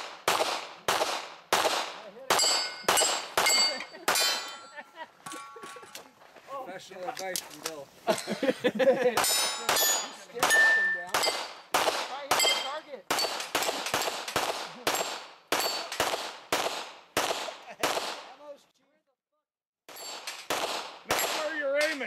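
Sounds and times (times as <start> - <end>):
gunshots: 0.0 - 4.6, 9.2 - 18.4, 19.9 - 22.0
steel plates ringing: 2.4 - 6.0, 9.2 - 11.5, 12.4 - 13.4.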